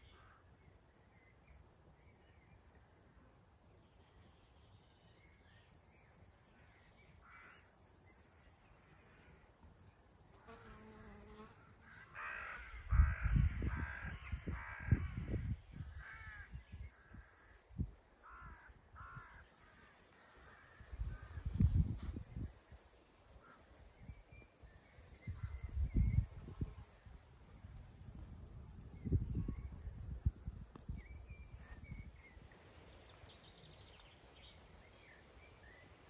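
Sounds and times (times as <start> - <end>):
faint field ambience: 0.0 - 36.0
crows cawing: 7.2 - 7.7, 11.8 - 17.5, 18.2 - 21.5
wind buffeting microphone: 12.8 - 17.9, 20.9 - 22.6, 25.2 - 32.2.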